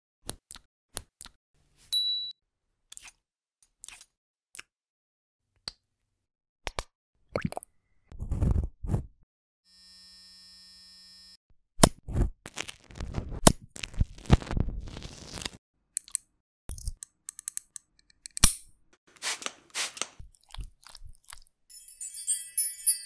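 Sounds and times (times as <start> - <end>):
nail clippers cutting toenail: 16.0 - 20.2
scalpel scraping toenail: 19.1 - 20.2
bright sparkling chime: 21.7 - 23.0.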